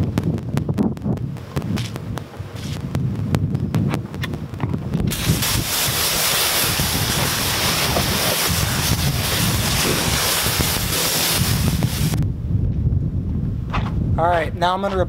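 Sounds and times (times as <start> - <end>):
wind rumble on microphone: 0.0 - 15.0
water jet spraying car: 5.1 - 12.2.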